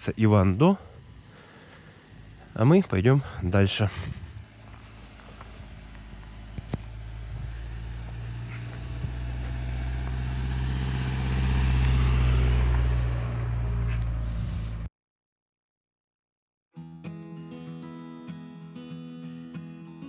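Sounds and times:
car engine and tyre noise: 0.0 - 14.9.

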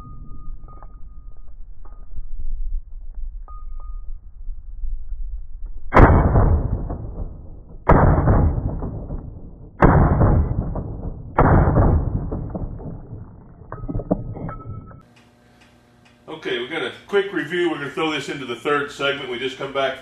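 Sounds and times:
gunshots: 5.9 - 13.2.

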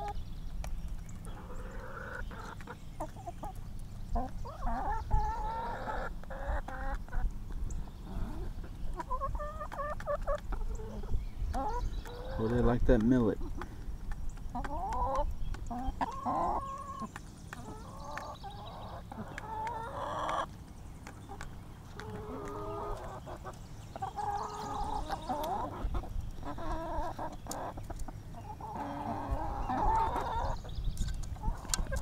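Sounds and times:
hens clucking: 0.0 - 32.0
beaks pecking at seed: 8.9 - 28.1.

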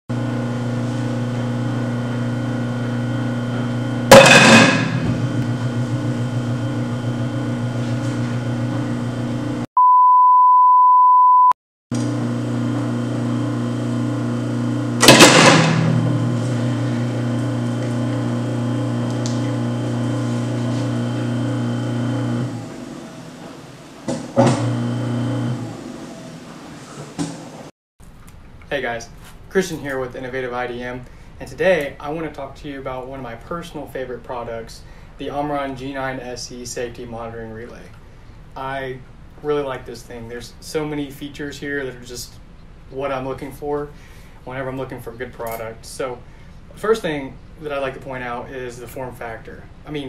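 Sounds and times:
garbage disposal motor humming: 0.1 - 9.6, 12.0 - 27.3
loud metallic clang: 4.1 - 5.8, 15.0 - 16.8
censor bleep: 9.8 - 11.6.

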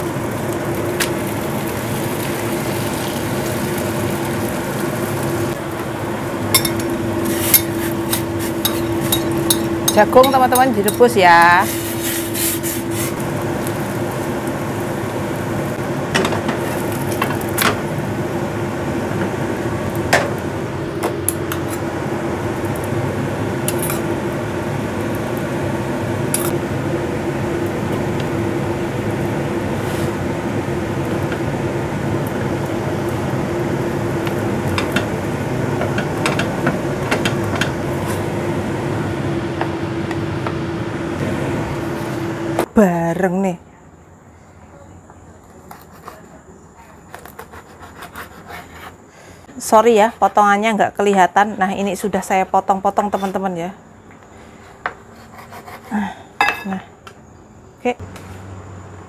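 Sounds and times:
steady kitchen hum: 0.0 - 59.0
utensils clinking on cookware: 6.5 - 13.2, 56.4 - 56.8.

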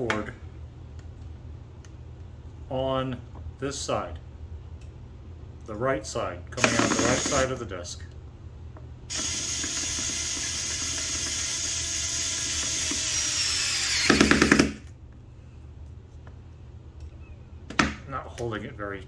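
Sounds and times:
power screwdriver motor: 6.6 - 7.5, 9.1 - 14.8.

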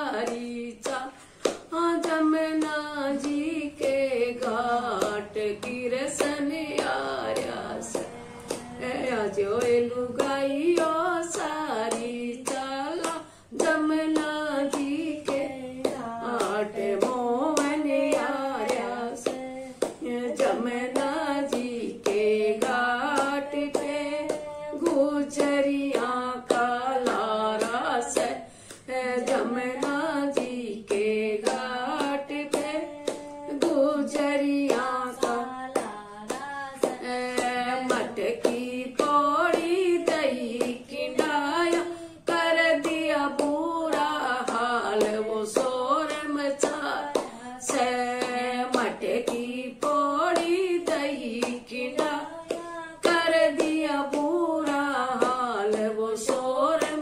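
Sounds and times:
hands clapping to a beat: 0.0 - 57.0
woman singing devotional song: 0.0 - 57.0.

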